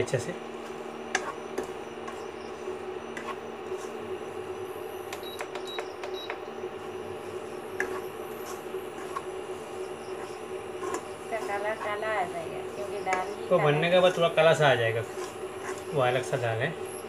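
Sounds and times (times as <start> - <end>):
induction cooktop hum: 0.0 - 17.0
metal ladle scraping a pan: 7.8 - 9.3, 10.2 - 11.6, 14.9 - 16.0.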